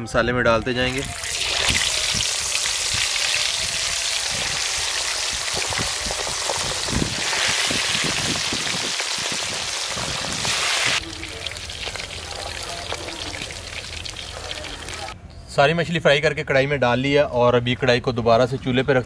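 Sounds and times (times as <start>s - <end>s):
fish deep-frying in oil: 0.9s - 15.2s.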